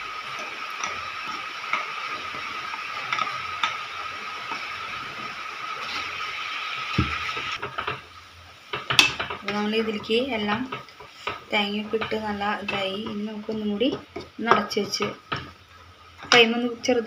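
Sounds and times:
cooktop fan hum and whine: 0:00.0 - 0:17.0
dull knock: 0:07.0 - 0:07.2.

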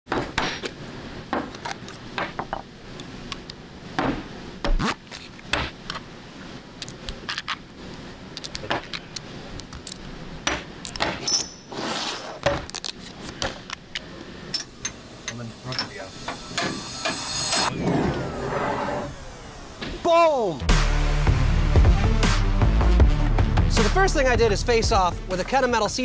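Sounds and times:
metal tools clicking and clinking: 0:06.8 - 0:07.5, 0:08.4 - 0:10.1
short scrape: 0:11.7 - 0:12.4.

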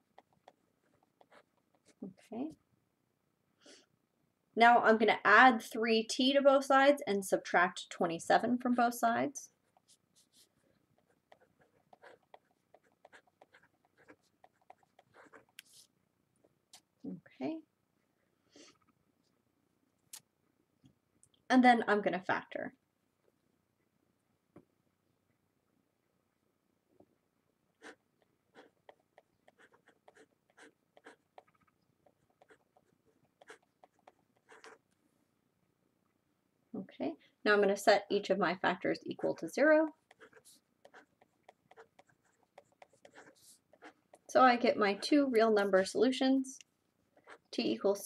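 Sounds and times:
marker scratching on paper: 0:00.2 - 0:02.3, 0:09.6 - 0:15.9, 0:27.8 - 0:28.0, 0:28.6 - 0:34.8, 0:39.1 - 0:44.3.

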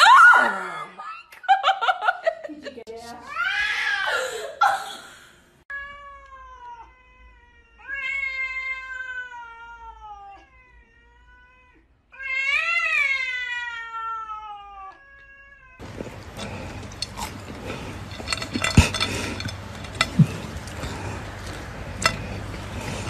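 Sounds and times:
cats yowling: 0:05.7 - 0:23.0.

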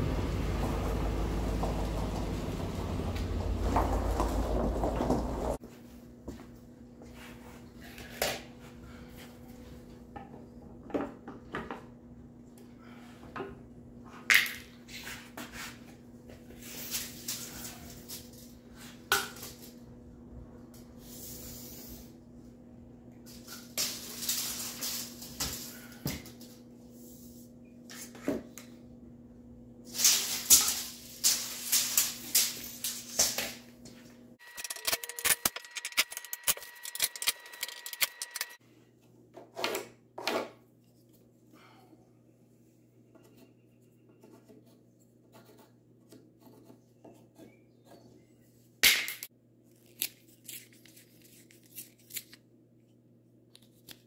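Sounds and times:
wood rubbing scraping and knocking: 0:00.5 - 0:05.6
steady whine: 0:34.4 - 0:38.6.

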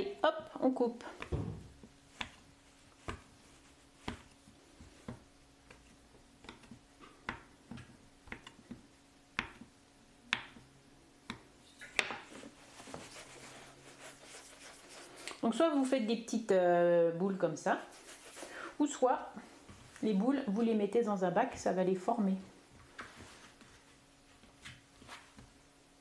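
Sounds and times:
dough rubbing between palms: 0:00.0 - 0:07.0, 0:12.2 - 0:15.9, 0:17.8 - 0:20.2
knife tapping on wooden board: 0:06.4 - 0:08.8, 0:09.4 - 0:09.7, 0:10.3 - 0:10.6.

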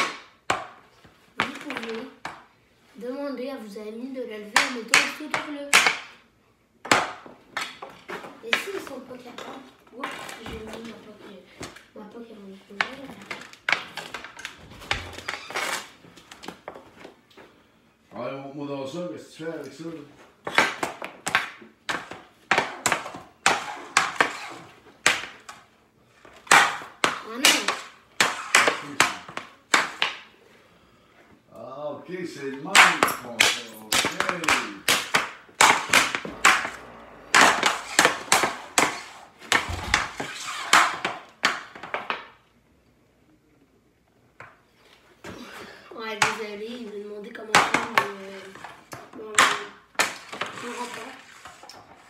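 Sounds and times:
hockey stick clacking puck: 0:04.6 - 0:06.2, 0:20.5 - 0:25.6, 0:26.4 - 0:30.3, 0:32.6 - 0:42.3, 0:46.2 - 0:46.4, 0:47.4 - 0:52.0.

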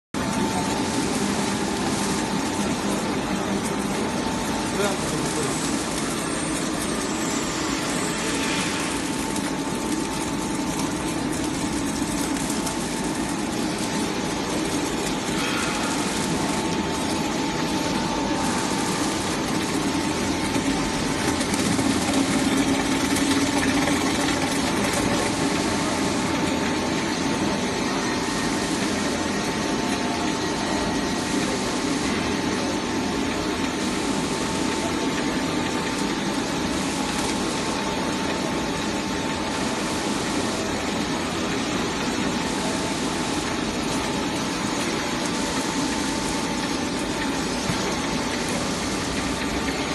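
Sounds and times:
steady high hum: 0:00.2 - 0:49.9.

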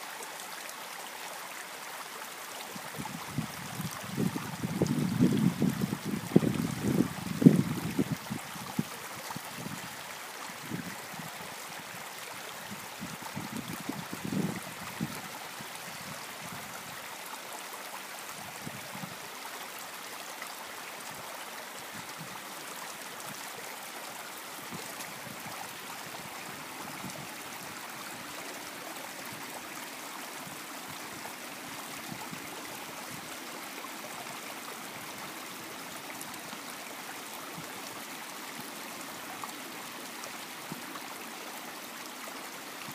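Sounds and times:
creek water running: 0:00.0 - 0:42.9
wind buffeting microphone: 0:03.0 - 0:10.0, 0:12.7 - 0:15.3.

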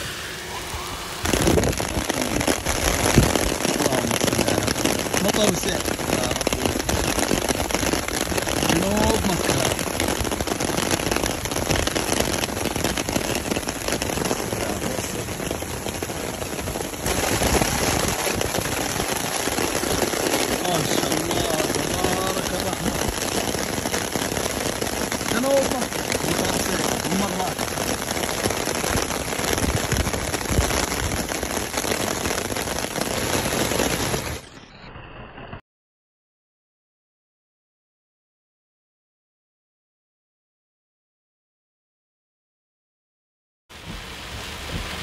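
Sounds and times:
heavy rain on ground: 0:00.0 - 0:34.7, 0:43.7 - 0:45.0.

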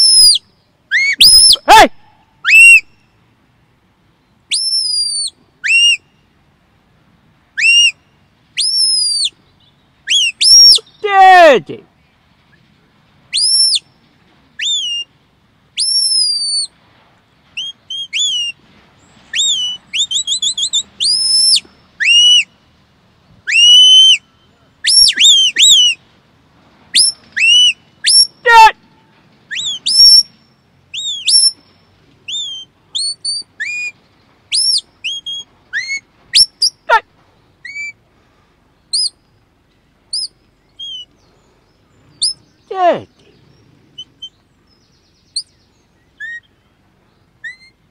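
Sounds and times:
shepherd's whistle commands: 0:00.0 - 0:02.9, 0:04.5 - 0:06.0, 0:07.6 - 0:08.0, 0:10.1 - 0:11.6, 0:13.4 - 0:13.8, 0:14.6 - 0:15.1, 0:15.8 - 0:16.7, 0:17.6 - 0:18.6, 0:19.4 - 0:22.5, 0:23.5 - 0:24.2, 0:24.8 - 0:26.0, 0:27.0 - 0:28.8, 0:29.5 - 0:30.4, 0:31.0 - 0:31.6, 0:34.5 - 0:37.0.

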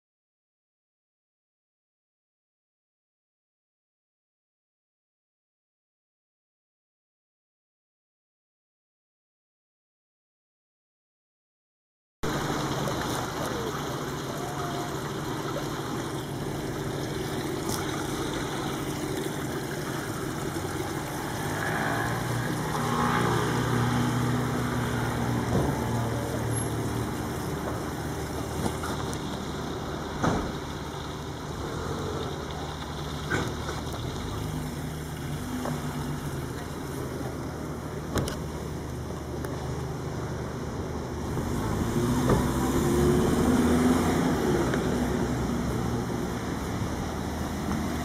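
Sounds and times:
vehicle engine humming: 0:12.2 - 0:48.0.

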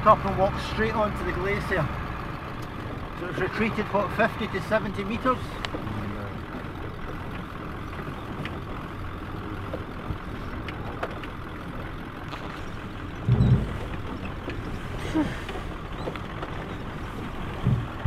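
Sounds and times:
engine and tyre rumble: 0:00.0 - 0:18.0
heavy low thump: 0:13.2 - 0:14.0, 0:17.6 - 0:18.0.

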